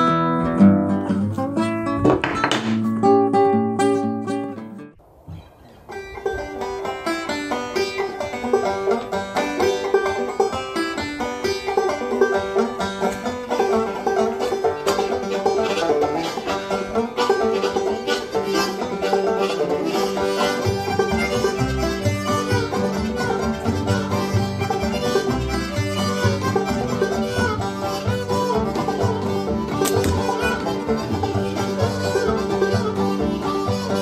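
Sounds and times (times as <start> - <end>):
picked banjo: 0.0 - 5.0, 5.9 - 34.0
guitar accompaniment: 0.0 - 34.0
bass notes: 19.8 - 34.0.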